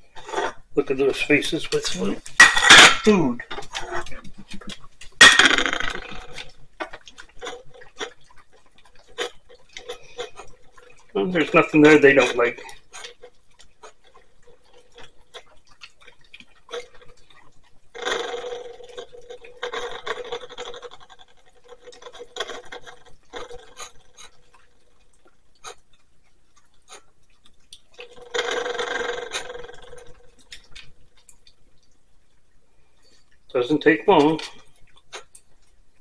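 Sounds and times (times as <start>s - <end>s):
dogs licking food off plates: 0.0s - 36.0s
scraping on ceramic plates: 1.5s - 6.4s.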